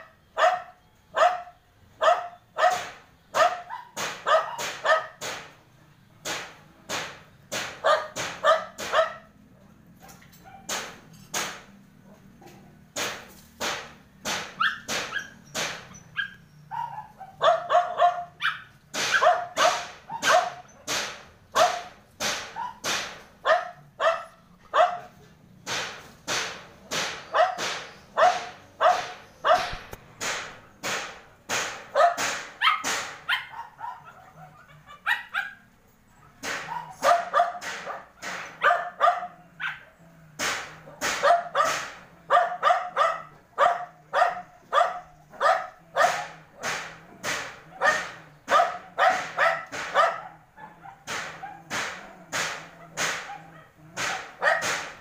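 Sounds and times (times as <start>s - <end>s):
dog barking: 0.3s - 5.2s, 7.8s - 9.4s, 10.0s - 10.9s, 14.6s - 20.9s, 21.5s - 25.2s, 27.3s - 29.9s, 31.9s - 35.7s, 36.5s - 40.2s, 40.8s - 46.8s, 47.6s - 55.0s.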